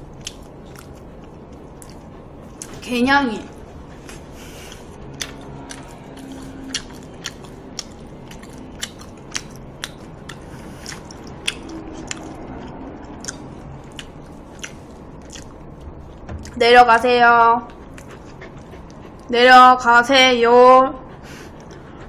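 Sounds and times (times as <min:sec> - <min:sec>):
person chewing food: 0:00.0 - 0:02.8, 0:03.5 - 0:16.6, 0:17.7 - 0:19.3, 0:21.2 - 0:22.0.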